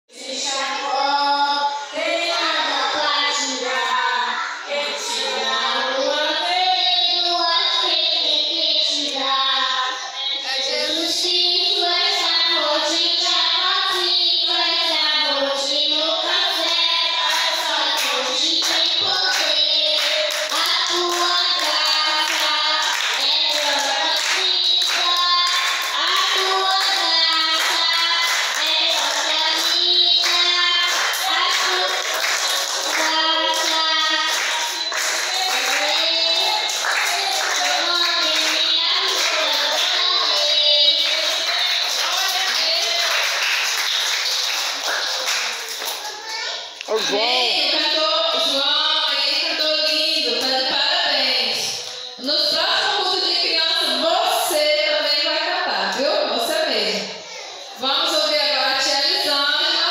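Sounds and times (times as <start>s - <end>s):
child singing a gospel song: 0.1s - 43.4s, 44.9s - 59.9s.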